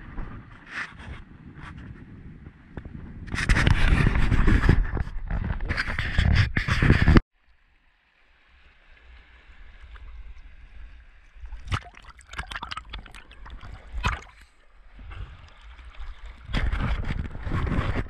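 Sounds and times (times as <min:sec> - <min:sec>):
wind buffeting microphone: 0:00.0 - 0:07.2, 0:12.8 - 0:18.0
water splashes and sloshes: 0:07.4 - 0:18.0.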